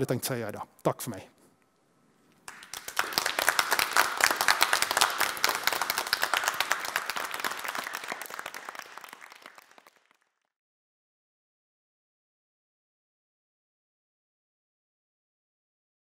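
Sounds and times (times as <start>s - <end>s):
audience applauding: 2.4s - 10.4s.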